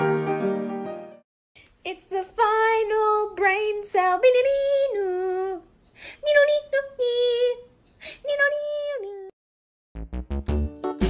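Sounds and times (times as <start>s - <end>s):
high-pitched singing voice: 1.9s - 9.4s.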